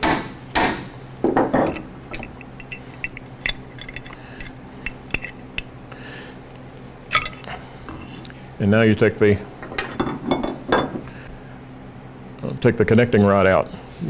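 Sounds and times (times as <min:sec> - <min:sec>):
metal parts clinking: 0:01.6 - 0:05.8, 0:07.1 - 0:07.5
metal scrape: 0:01.7 - 0:05.7.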